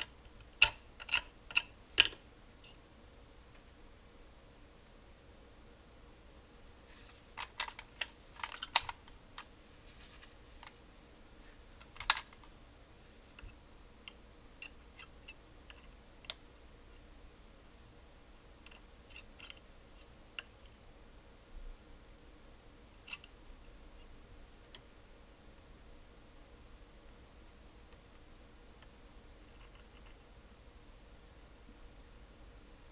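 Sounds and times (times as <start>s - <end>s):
screwdriver clicking and scraping plastic: 0.0s - 2.2s, 7.4s - 9.2s.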